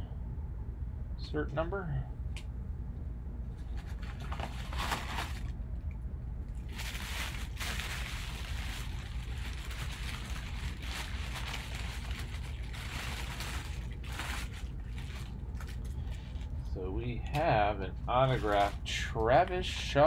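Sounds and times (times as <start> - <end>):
low hum: 0.0 - 20.0
tissue paper rustling and crinkling: 3.7 - 5.5, 6.6 - 16.6, 18.2 - 19.1.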